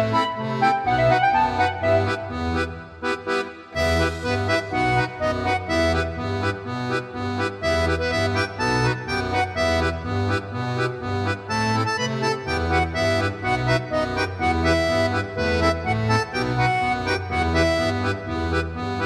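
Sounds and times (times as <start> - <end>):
accordion folk dance tune: 0.0 - 19.0
bass in steady beat: 3.8 - 19.0.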